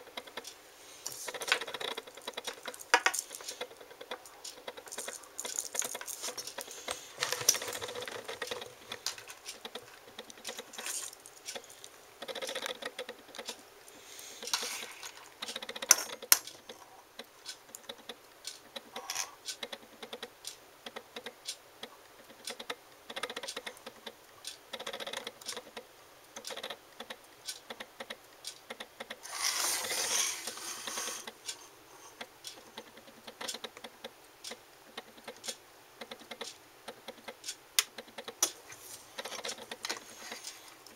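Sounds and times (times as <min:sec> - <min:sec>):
rustling: 0:00.9 - 0:12.6.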